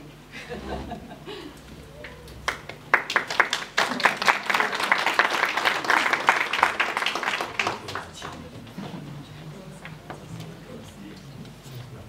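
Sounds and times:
audience applauding: 0:01.7 - 0:08.8.

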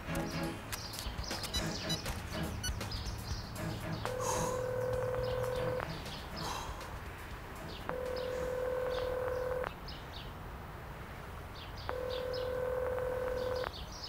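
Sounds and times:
birds chirping: 0:00.0 - 0:10.4, 0:11.5 - 0:14.0
telephone ringback beeps: 0:04.7 - 0:05.8, 0:07.9 - 0:09.7, 0:11.9 - 0:13.7.

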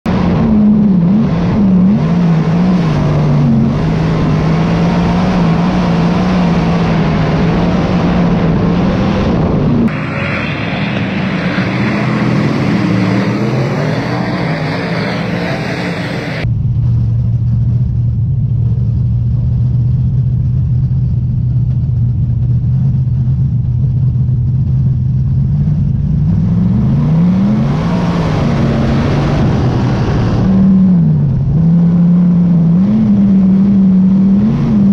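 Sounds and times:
race cars passing: 0:00.1 - 0:16.4
race car engine revving: 0:00.1 - 0:16.5, 0:25.2 - 0:34.9.

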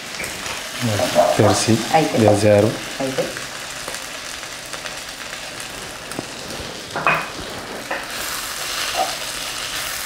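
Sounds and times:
meat sizzling in a pan: 0:00.0 - 0:10.0
utensil scraping pan: 0:06.1 - 0:09.5.

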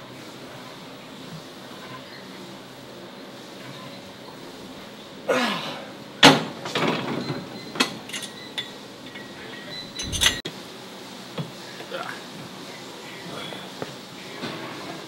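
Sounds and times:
weight stack metal clank: 0:09.9 - 0:10.4
rattling and light clicks: 0:10.0 - 0:10.4.

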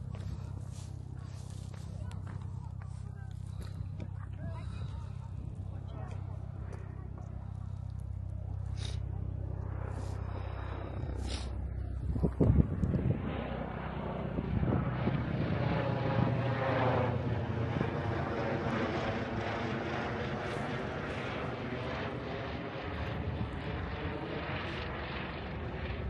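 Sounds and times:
propeller aircraft engine: 0:00.0 - 0:26.0
wind buffeting microphone: 0:09.3 - 0:26.0.

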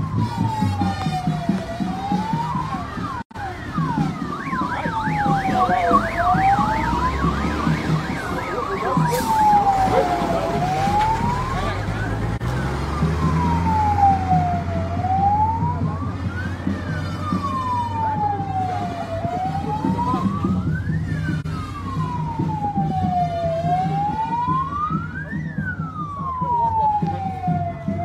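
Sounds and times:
vehicle siren wailing: 0:00.0 - 0:28.0.

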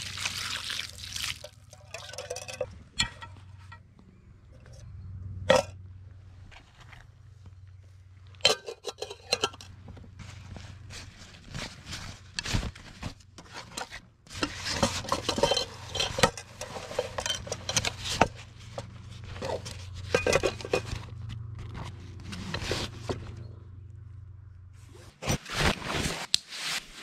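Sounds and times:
metal cookware clinking: 0:01.7 - 0:03.8, 0:08.4 - 0:09.7, 0:15.1 - 0:18.0.

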